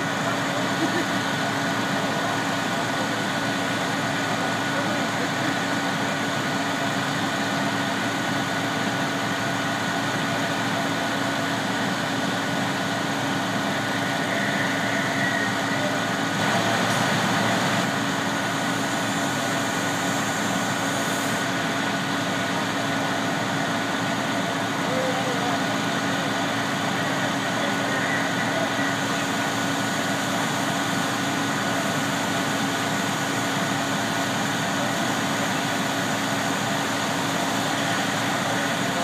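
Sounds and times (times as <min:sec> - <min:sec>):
fire engine pump droning: 0:00.0 - 0:39.0.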